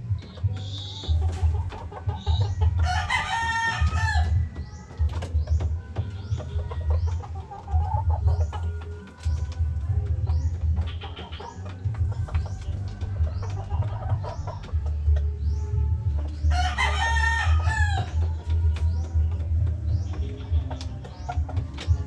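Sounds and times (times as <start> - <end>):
chickens clucking: 0.0 - 22.0
rooster crowing: 2.8 - 4.3, 16.5 - 18.1.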